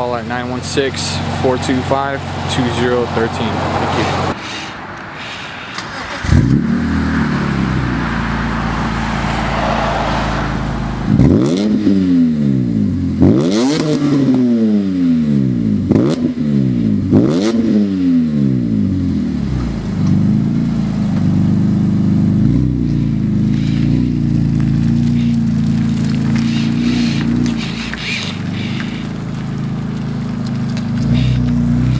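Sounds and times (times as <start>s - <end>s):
car engine idling: 0.0s - 11.4s, 18.7s - 31.9s
car engine revving: 0.1s - 4.4s, 5.8s - 31.9s.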